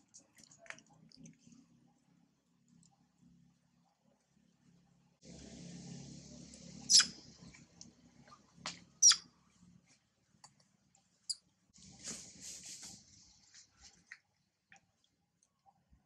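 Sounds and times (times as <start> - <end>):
monkey squeaks: 6.9 - 7.2, 9.0 - 9.2
rustling: 11.8 - 14.2.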